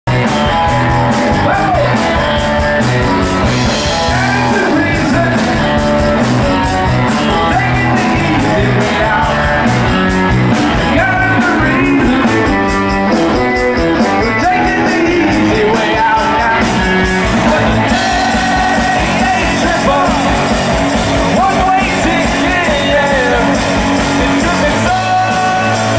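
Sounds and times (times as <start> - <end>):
live rock band playing: 0.1 - 25.9
person singing: 0.2 - 2.5, 3.7 - 9.9, 10.7 - 12.8, 14.0 - 25.9.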